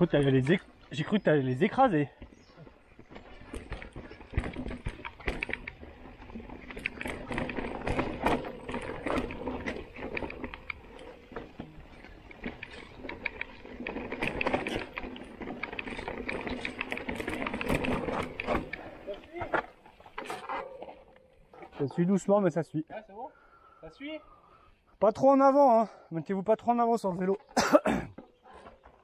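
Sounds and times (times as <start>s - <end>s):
bike tyres rolling over stones: 0.0s - 21.2s
bike knocking and rattling: 0.0s - 21.8s.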